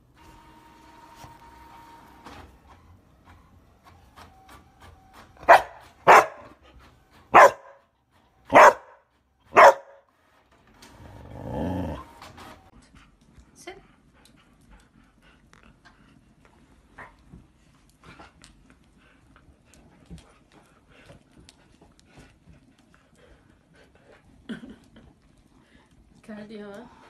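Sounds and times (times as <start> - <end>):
dog barking: 5.4 - 6.6, 7.3 - 7.8, 8.5 - 10.0
dog growling low: 10.9 - 12.1.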